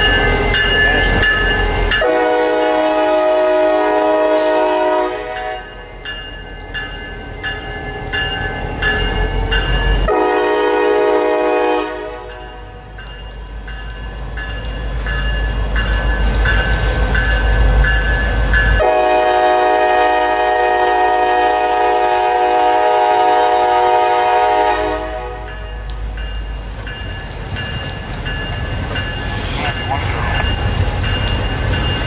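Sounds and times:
freight train wheels rumbling: 0.0 - 32.0
locomotive air horn: 2.0 - 5.7, 10.1 - 12.4, 18.8 - 25.6.

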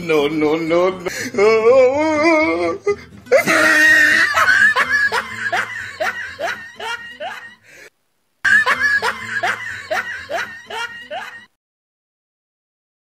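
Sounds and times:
person laughing: 2.8 - 7.8, 8.4 - 11.6.

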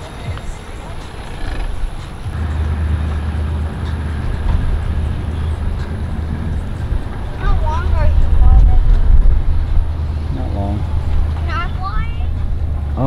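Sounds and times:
jet ski engine running: 0.0 - 13.0.

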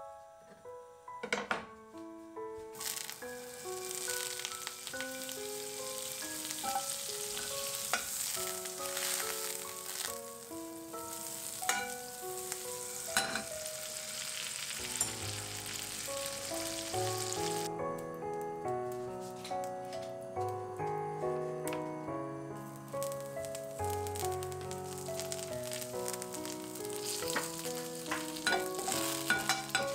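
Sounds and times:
gentle background music: 0.0 - 29.9
butter sizzling in a frying pan: 2.8 - 17.7, 22.6 - 29.9.

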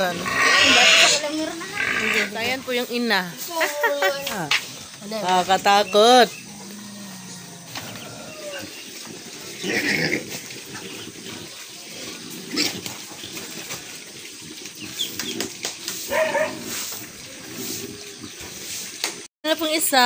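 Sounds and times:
piglets squealing grunts: 0.0 - 2.4
piglets snuffling and chewing: 7.4 - 19.3.

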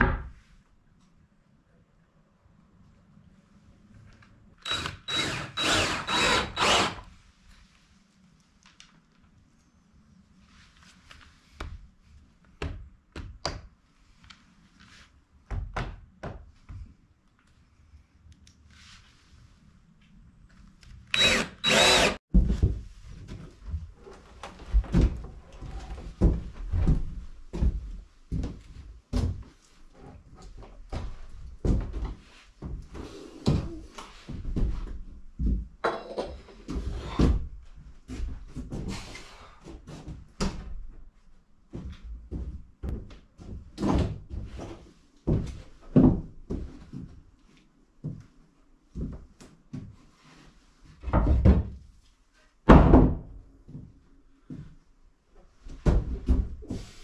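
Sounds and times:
cordless drill driving screws: 4.6 - 7.1, 21.1 - 22.2.

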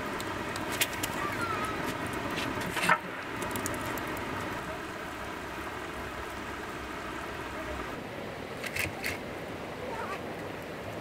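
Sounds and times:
wood stove hissing and crackling: 0.0 - 11.0.

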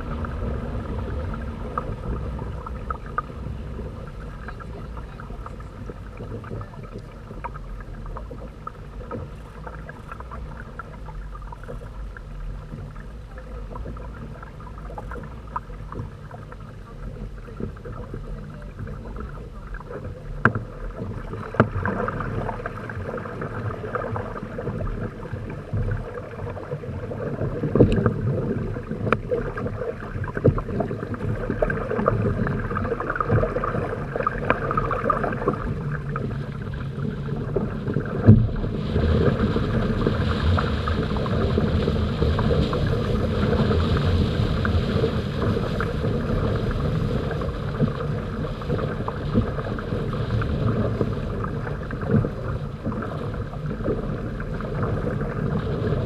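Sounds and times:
wind buffeting microphone: 0.0 - 9.5, 10.3 - 56.0
water splashing along hulls: 0.0 - 56.0.

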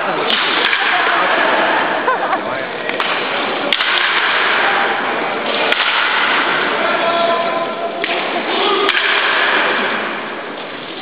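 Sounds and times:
background noise: 0.0 - 11.0
baseball bat cracking ball: 2.9 - 4.8, 5.5 - 6.8, 8.0 - 10.4
faint voices: 6.6 - 9.0.

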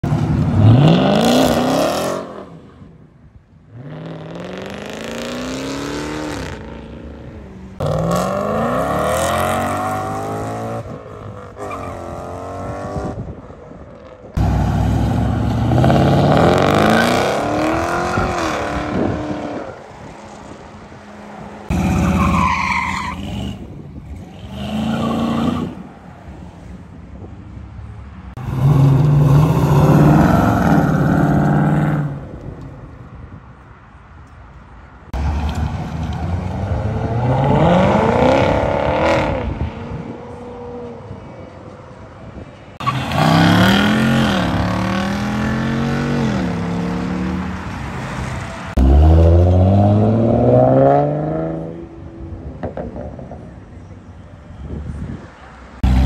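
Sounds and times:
car engines accelerating: 3.7 - 26.5, 35.1 - 54.2, 55.6 - 56.0.

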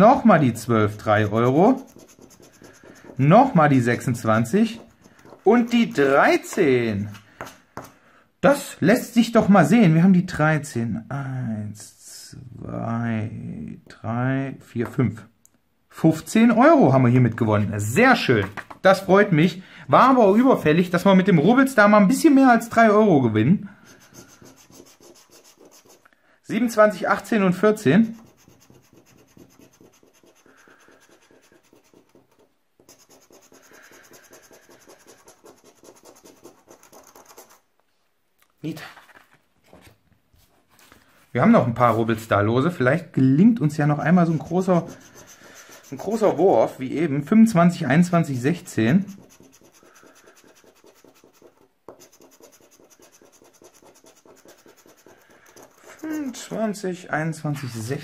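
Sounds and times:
scraper scratching scratch card: 0.0 - 7.2, 23.9 - 26.0, 28.1 - 37.6, 44.3 - 46.6, 48.2 - 56.6.

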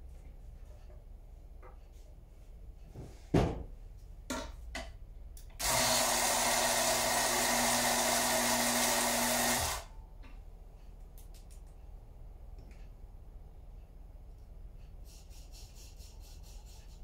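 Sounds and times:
coffee grinder whirring: 5.6 - 9.9.

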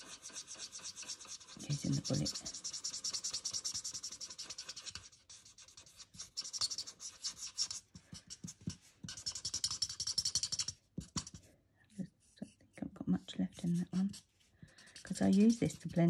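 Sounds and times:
pen scribbling on card: 0.0 - 11.4, 13.6 - 16.0.

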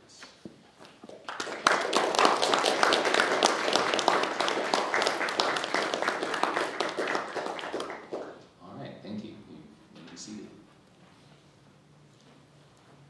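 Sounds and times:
crowd applauding: 1.1 - 8.4.

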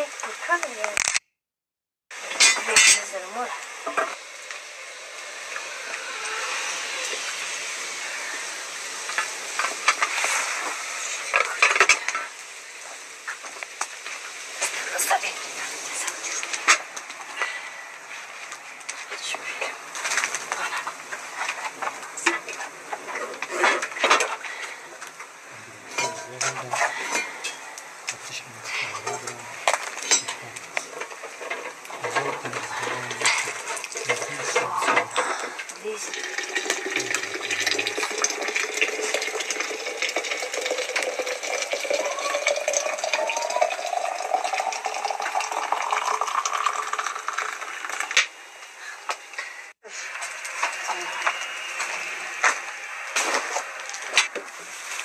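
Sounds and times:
wood fire crackling: 0.0 - 1.2, 2.1 - 55.0
metal kettles clinking: 2.3 - 3.2, 25.8 - 27.7, 28.6 - 48.1
liquid pouring into a flask: 32.0 - 48.2.

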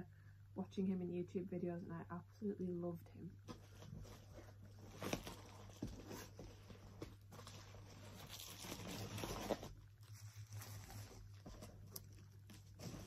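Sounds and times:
bubble wrap rustling: 3.5 - 13.0.

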